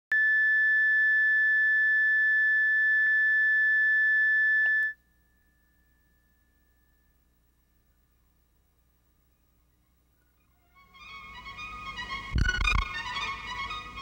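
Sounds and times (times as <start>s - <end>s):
high-pitched line-up tone: 12.2s - 14.0s.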